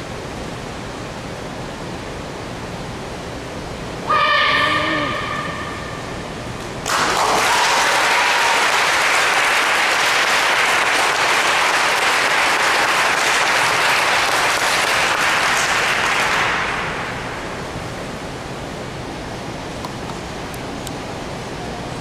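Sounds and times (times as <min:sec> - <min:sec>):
group clapping: 0:06.6 - 0:17.7.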